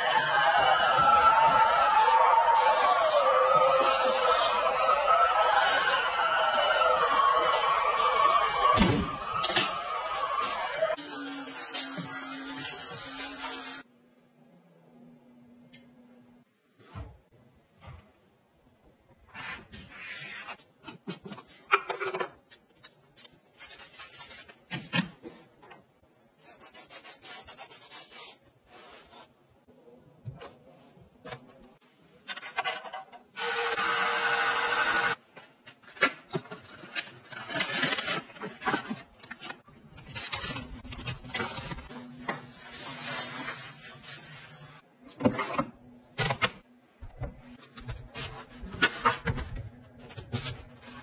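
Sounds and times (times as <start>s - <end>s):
rubbing and scraping household items: 19.2s - 33.1s, 35.2s - 46.0s, 47.1s - 51.0s.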